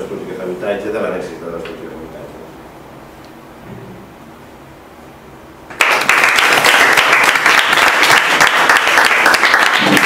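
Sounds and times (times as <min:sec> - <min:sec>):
audience applauding: 0:05.7 - 0:10.0.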